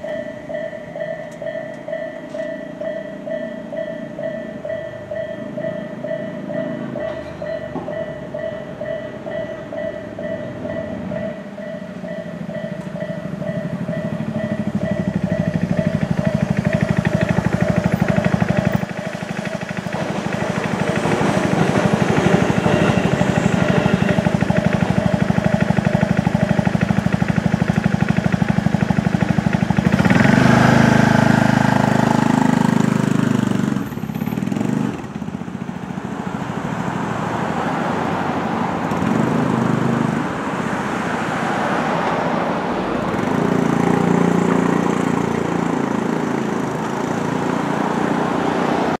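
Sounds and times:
level-crossing warning bell ringing: 0.0 - 30.3
road traffic: 0.0 - 49.0
vehicle engines: 0.0 - 49.0.

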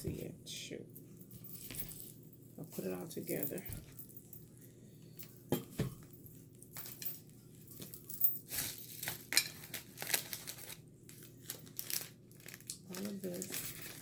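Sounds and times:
packaging crinkling and rustling: 7.8 - 14.0.

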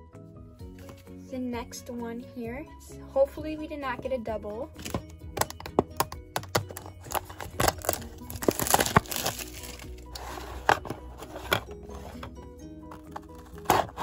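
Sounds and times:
background music: 0.0 - 14.0
box clicks and taps: 4.8 - 9.6
plastic wrapping crinkling: 6.4 - 11.5.

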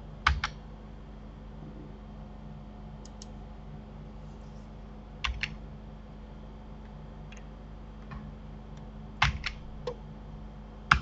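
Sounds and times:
steady low hum: 0.0 - 11.0
computer keyboard key clicks: 5.2 - 5.6, 9.2 - 10.0.

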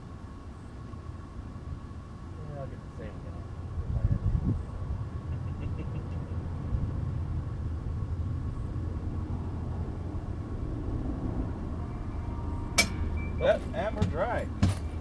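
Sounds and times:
wind buffeting microphone: 3.7 - 5.2.

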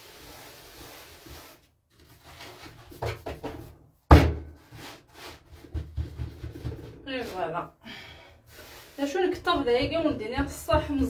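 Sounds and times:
hands patting bread dough: 9.4 - 11.0.

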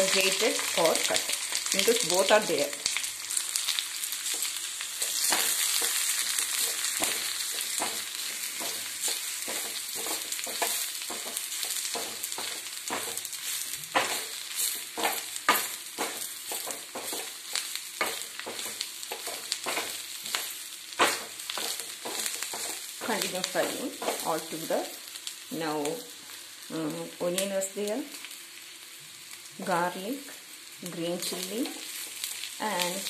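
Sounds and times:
food sizzling in hot oil: 0.0 - 33.0
spatula scraping and knocking pan: 4.2 - 24.6.

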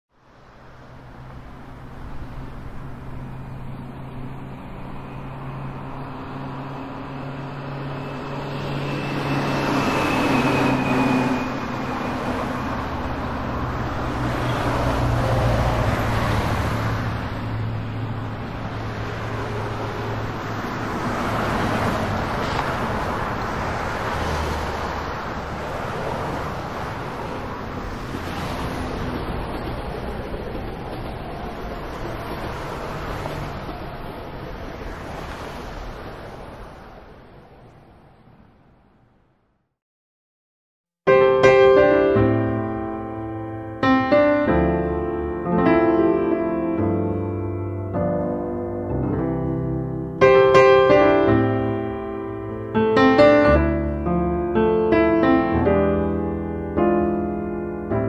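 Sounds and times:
small plane engine droning: 1.1 - 25.1.

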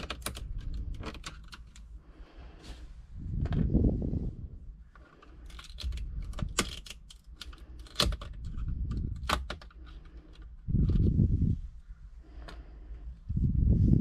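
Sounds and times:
metal keys clicking and scraping: 0.0 - 1.9, 5.0 - 11.1.

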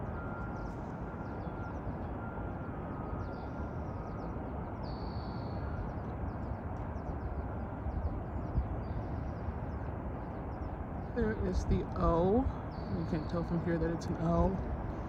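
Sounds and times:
bird trill: 0.0 - 7.4
low outdoor rumble: 0.0 - 15.0
small birds chirping: 0.4 - 15.0.

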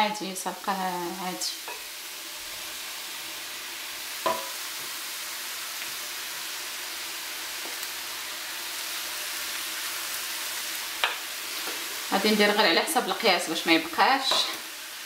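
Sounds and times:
vegetables sizzling in frying pan: 0.0 - 15.0.

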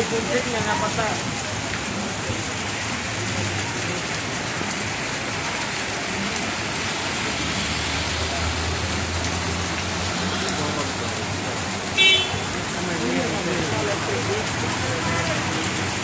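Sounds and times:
heavy rain on wet street: 0.0 - 16.0.

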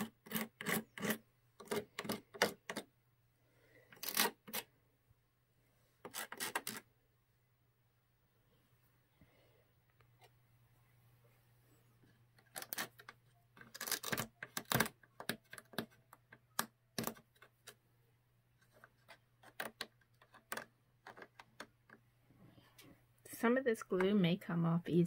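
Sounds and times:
razor blade scraping glue: 0.0 - 2.9, 3.9 - 4.7, 6.0 - 6.9, 12.5 - 14.9
faint low hum: 0.1 - 25.0.

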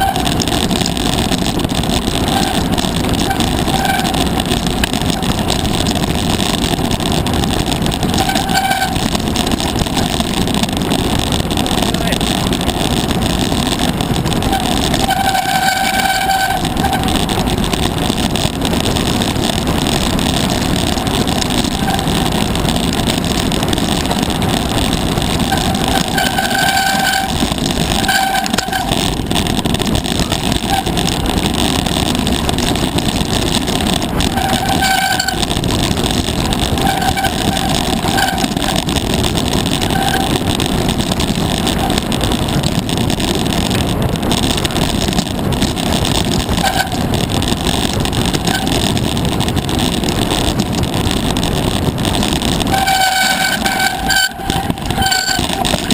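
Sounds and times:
bike rattling over stones: 0.0 - 55.9
wind rush on microphone: 0.0 - 55.9
high brake squeals: 14.5 - 17.0, 52.8 - 55.6.

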